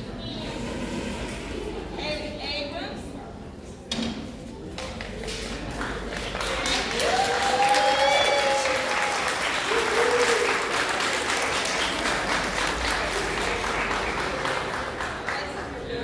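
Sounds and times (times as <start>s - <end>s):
audience clapping: 4.9s - 16.0s
cheering shout: 6.8s - 10.7s.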